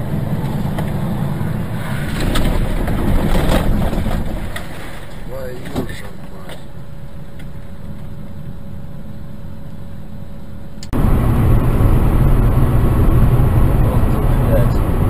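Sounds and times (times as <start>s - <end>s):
car at highway speed: 0.0s - 15.0s
engine and road rumble: 0.0s - 15.0s
faint steady hum: 4.4s - 15.0s.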